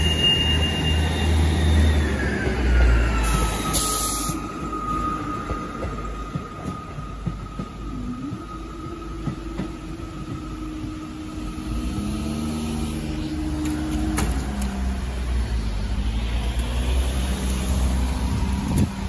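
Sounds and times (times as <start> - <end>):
low rumble of engines: 7.8 - 19.0.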